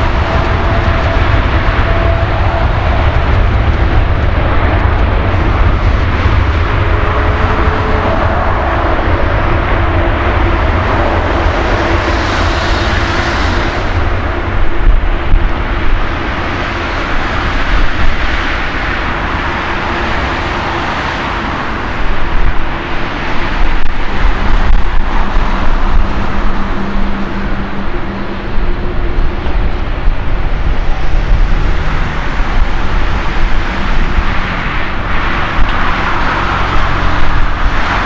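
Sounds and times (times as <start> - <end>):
jet engine roar: 0.0 - 38.0.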